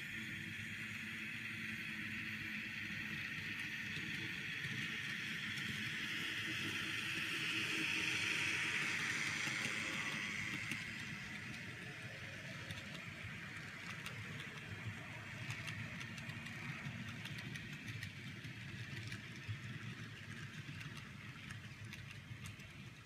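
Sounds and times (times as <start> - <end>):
model train wheels rumbling on rail: 0.0 - 23.0
small clicks: 15.4 - 22.7.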